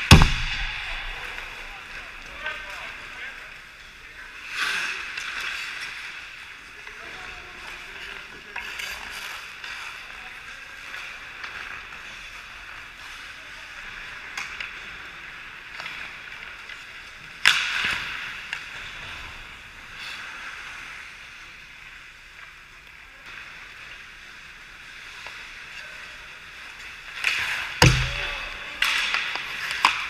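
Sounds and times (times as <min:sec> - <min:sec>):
goalie thump on ice: 0:00.0 - 0:00.8, 0:27.8 - 0:28.6.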